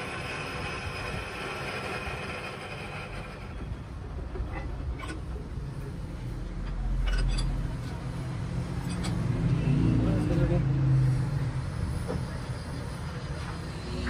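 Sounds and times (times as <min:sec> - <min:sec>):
lathe tool grinding stone: 0:00.0 - 0:03.8.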